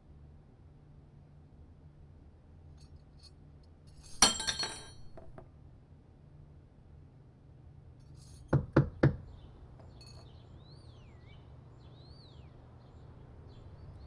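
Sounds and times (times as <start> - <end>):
knocks on wooden door: 8.6 - 9.2.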